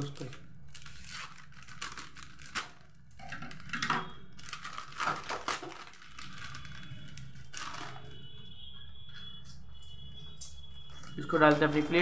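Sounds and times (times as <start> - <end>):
scissors cutting plastic: 0.0 - 8.1, 10.4 - 12.0
plastic packet crinkling: 0.0 - 8.2, 10.9 - 12.0.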